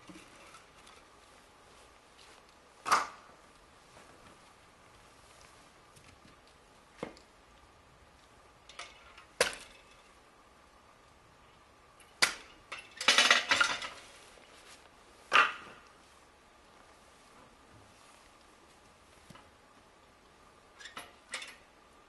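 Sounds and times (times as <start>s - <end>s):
firewood sticks knocking and clattering: 0.0s - 1.2s, 2.8s - 3.3s, 8.6s - 10.3s, 12.0s - 14.5s, 15.3s - 16.0s, 20.8s - 21.7s.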